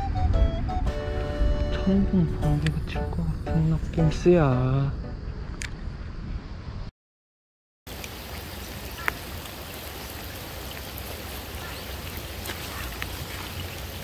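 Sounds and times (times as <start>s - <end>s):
rain falling on water: 7.9s - 14.0s.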